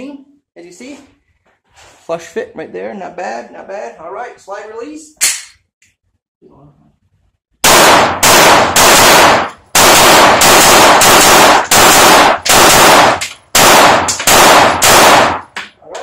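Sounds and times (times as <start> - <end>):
pistol shots with echo: 7.6 - 15.6.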